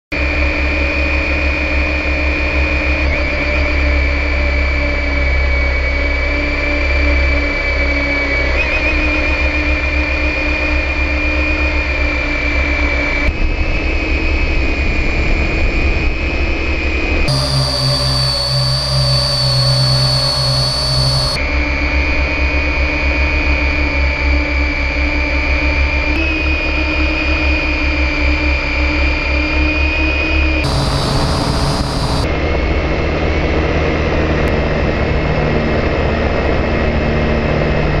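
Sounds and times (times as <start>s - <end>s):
drone motors whining: 17.3s - 21.4s, 30.6s - 32.3s.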